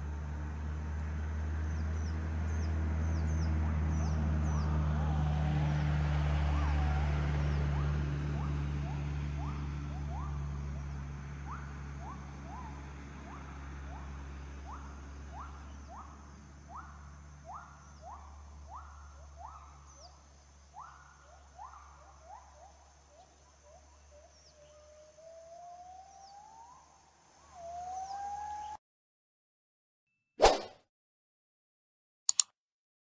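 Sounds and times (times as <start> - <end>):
rising whistled animal calls: 6.5 - 28.8.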